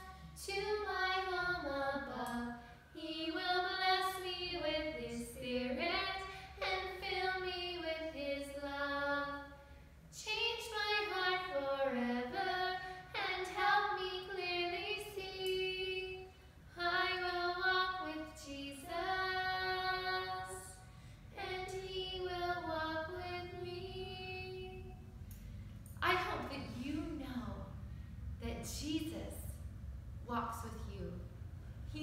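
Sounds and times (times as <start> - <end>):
woman singing: 10.2 - 20.7.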